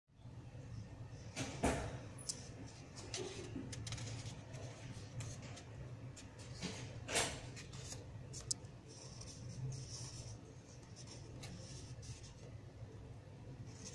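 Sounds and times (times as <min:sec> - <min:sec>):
paper clicks and rustles: 0:02.3 - 0:12.5.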